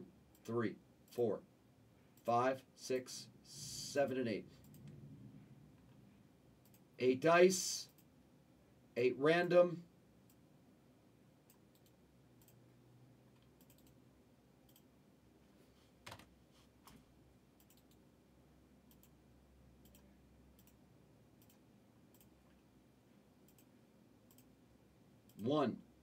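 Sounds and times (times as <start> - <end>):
mouse and keyboard clicks: 13.4 - 14.0.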